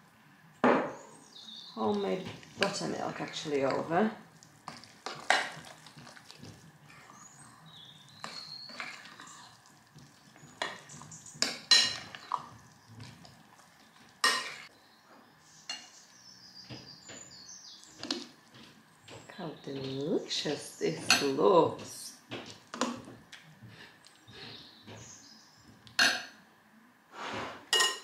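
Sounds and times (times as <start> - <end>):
spoon stirring in glass bowl: 1.9 - 14.7.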